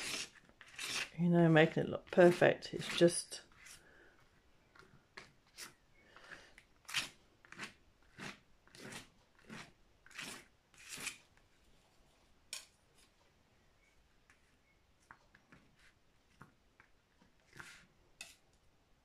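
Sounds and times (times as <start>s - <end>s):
paintbrush scratching on canvas: 0.0s - 3.8s, 17.4s - 18.3s.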